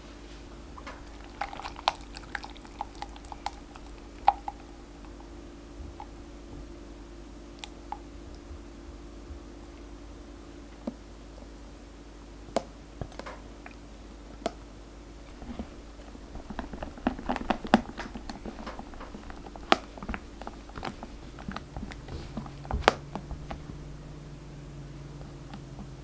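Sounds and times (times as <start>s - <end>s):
spatula folding wet cream: 0.1s - 6.3s, 15.3s - 24.3s.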